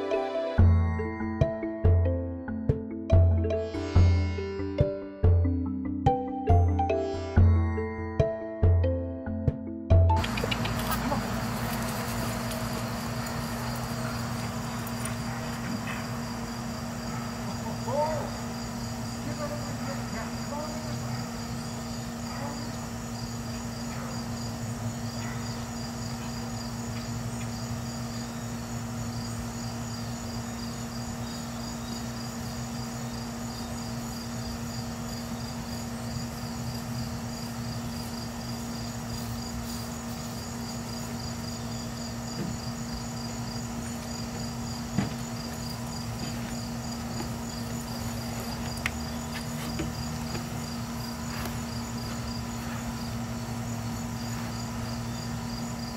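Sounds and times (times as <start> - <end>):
crickets chirping: 10.1 - 55.9.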